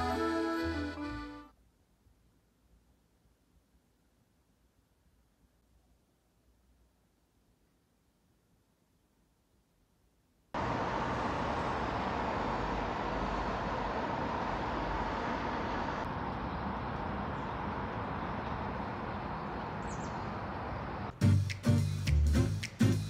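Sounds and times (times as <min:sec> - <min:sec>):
music: 0:00.0 - 0:01.5, 0:21.1 - 0:23.0
distant road traffic hum: 0:10.6 - 0:23.0
bird chirp: 0:16.4 - 0:23.0.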